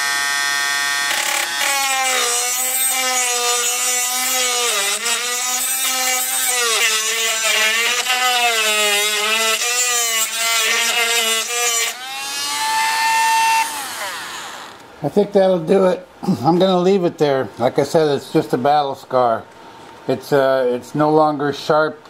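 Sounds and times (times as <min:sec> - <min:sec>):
rotary tool grinding wood: 0:01.0 - 0:14.8.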